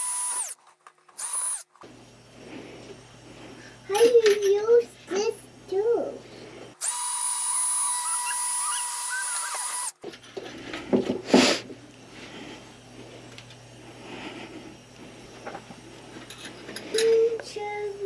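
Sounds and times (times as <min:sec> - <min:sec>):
drill whining into plastic: 0:00.0 - 0:01.8, 0:06.8 - 0:10.0.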